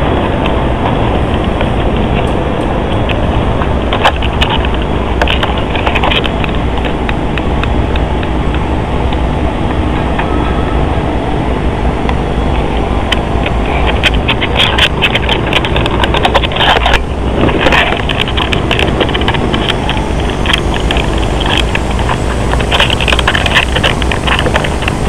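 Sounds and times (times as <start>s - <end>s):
loud rumbling noise: 0.0s - 25.0s.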